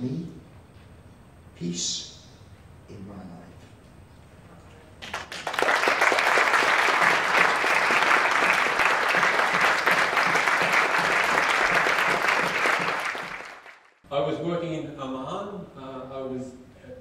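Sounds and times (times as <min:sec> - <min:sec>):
audience applauding: 0:05.0 - 0:13.9.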